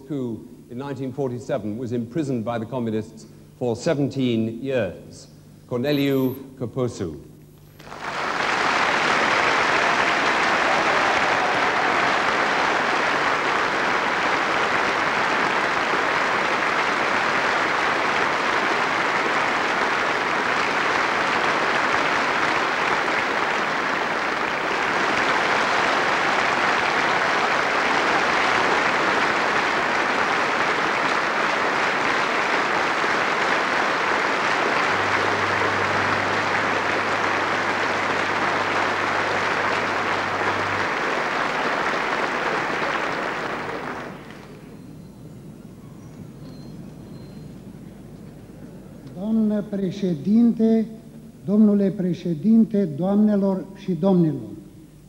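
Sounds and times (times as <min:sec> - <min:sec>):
audience clapping: 0:07.6 - 0:44.8.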